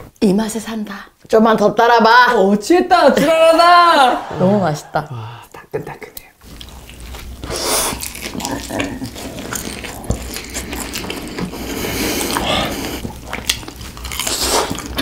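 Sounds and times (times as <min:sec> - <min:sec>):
crunchy chewing of fried chicken: 0:06.4 - 0:15.0.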